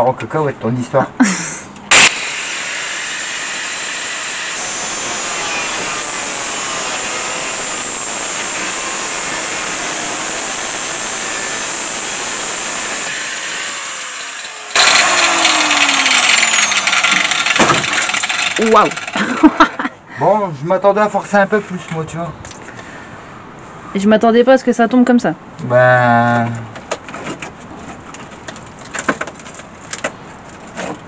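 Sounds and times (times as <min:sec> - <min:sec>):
angle grinder cutting steel: 0:01.9 - 0:19.4
rough metal scraping: 0:01.9 - 0:19.4.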